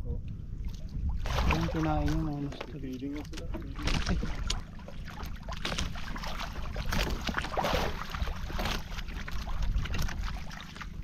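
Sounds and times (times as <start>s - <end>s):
wind buffeting microphone: 0.0s - 11.0s
water washing against hull: 0.4s - 11.0s.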